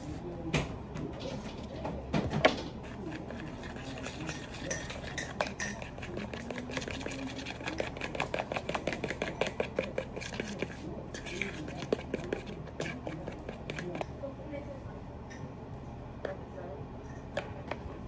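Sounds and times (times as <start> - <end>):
utensil stirring batter in ceramic bowl: 0.0 - 14.4.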